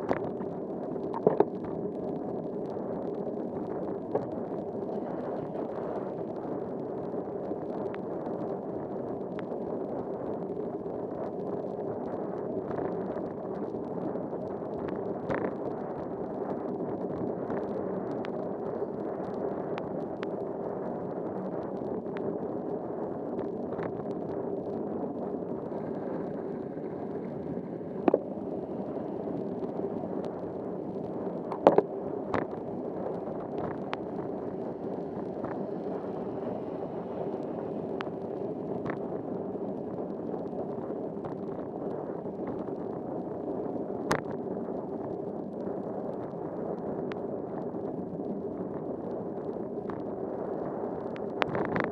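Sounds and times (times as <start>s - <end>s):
tyre and rain noise: 21.2s - 43.2s.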